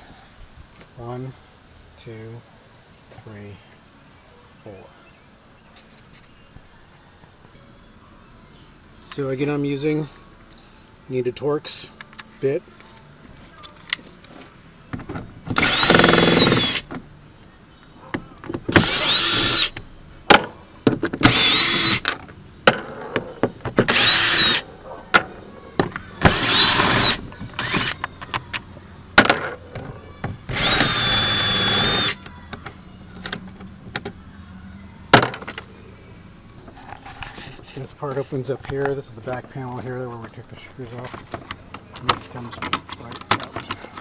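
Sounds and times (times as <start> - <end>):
cordless drill motor whine: 15.6 - 16.8, 18.8 - 19.7, 21.2 - 22.0, 23.9 - 24.6, 26.3 - 28.0, 30.5 - 32.2.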